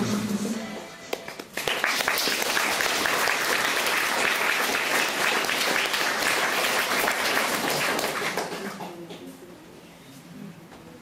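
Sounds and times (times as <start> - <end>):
audience applauding: 1.2 - 9.0.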